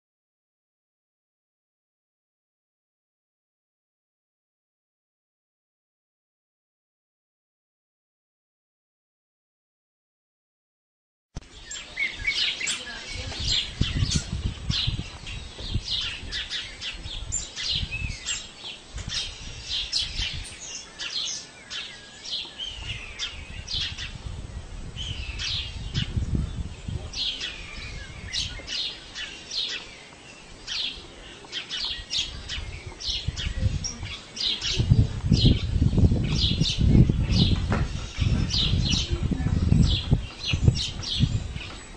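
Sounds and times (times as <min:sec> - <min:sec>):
small birds chirping: 0:11.4 - 0:41.9.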